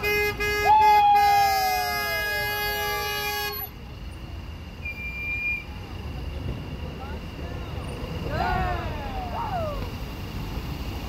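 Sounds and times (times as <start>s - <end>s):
car horn blast: 0.0s - 3.7s
traffic going by: 0.0s - 11.0s
whooping shouts: 0.6s - 2.3s, 8.3s - 9.9s.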